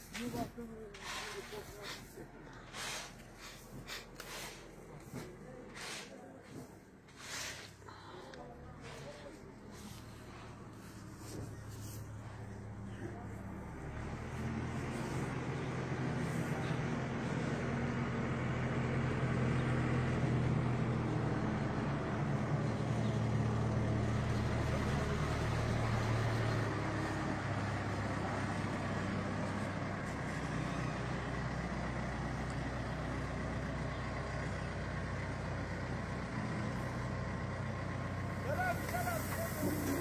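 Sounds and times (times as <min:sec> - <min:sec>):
diesel engine running under work: 0:00.0 - 0:40.0.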